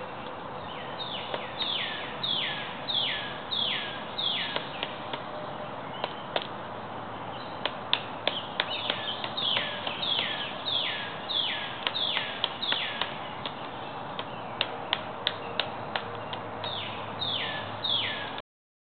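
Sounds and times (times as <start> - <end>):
songbird whistling: 0.7 - 4.9, 8.2 - 13.5, 14.2 - 18.4
woodpecker knocking on branch: 4.5 - 5.3, 6.0 - 6.6, 7.6 - 10.4, 11.8 - 16.5.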